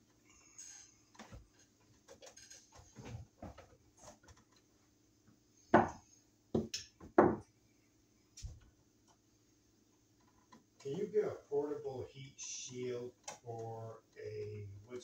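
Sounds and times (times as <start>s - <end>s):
sharp knocks on wood: 5.8s - 6.0s, 6.6s - 7.4s.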